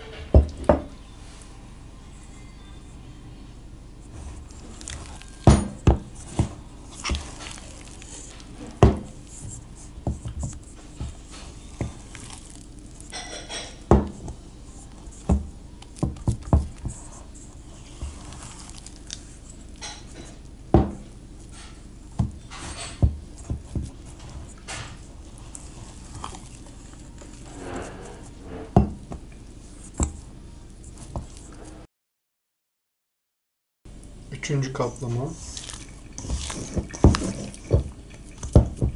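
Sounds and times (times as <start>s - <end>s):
wet dough slapping: 4.6s - 13.1s, 13.9s - 17.4s, 18.0s - 19.4s.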